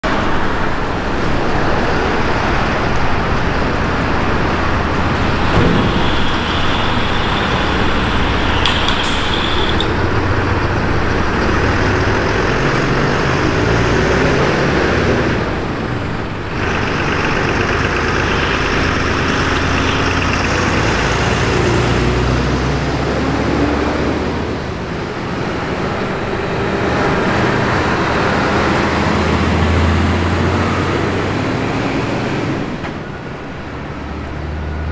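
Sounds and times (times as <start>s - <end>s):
diesel engines running: 0.0s - 34.9s
short high squeal: 5.3s - 10.3s.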